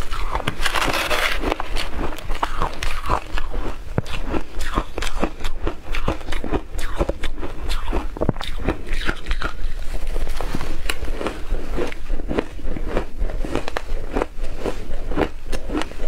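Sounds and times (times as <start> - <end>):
metal spoon scooping ice: 0.0 - 2.7
ice crunching when chewed: 0.0 - 16.0.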